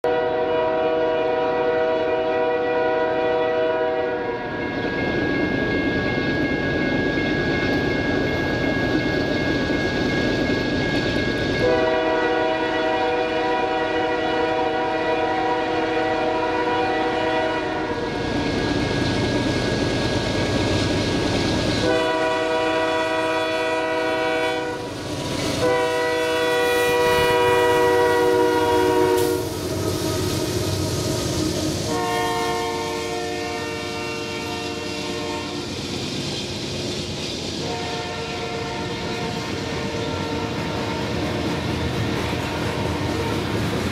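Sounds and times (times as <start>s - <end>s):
locomotive air horn blasts: 0.0s - 4.5s, 11.6s - 18.1s, 21.8s - 24.9s, 25.6s - 30.5s, 31.9s - 35.7s, 37.6s - 41.1s
train rumble: 0.0s - 43.9s.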